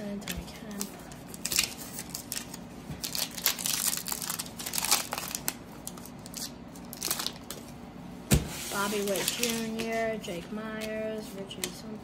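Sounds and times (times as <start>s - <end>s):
plastic wrapper tearing and crinkling: 0.6s - 7.7s.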